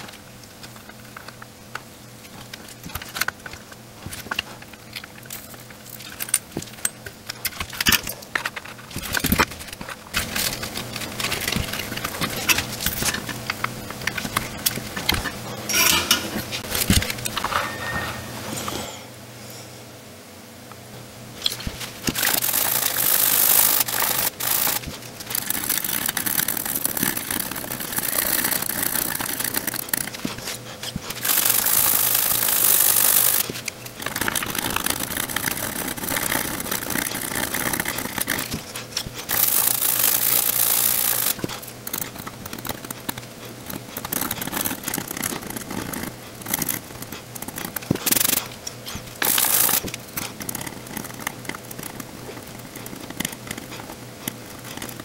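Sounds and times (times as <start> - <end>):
hissing scratchy noise bursts: 31.2 - 38.6.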